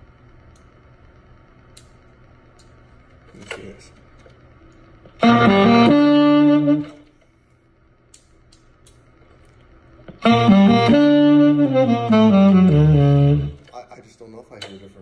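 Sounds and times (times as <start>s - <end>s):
amplified tenor saxophone: 5.2s - 7.1s, 10.1s - 13.7s.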